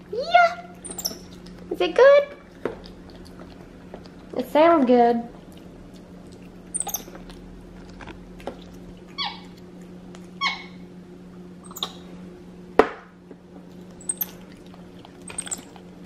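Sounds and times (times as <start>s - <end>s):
monkey squeaking: 0.8s - 1.4s, 6.7s - 7.2s, 9.2s - 9.5s, 10.4s - 10.8s, 11.6s - 12.1s, 14.0s - 14.4s, 15.2s - 15.8s.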